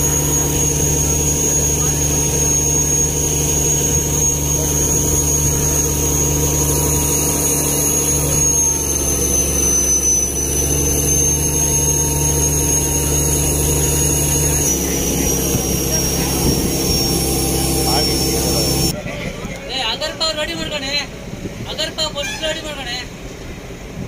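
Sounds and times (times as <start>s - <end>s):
thin high whine: 0.0s - 19.0s
boat engine drone: 0.0s - 24.0s.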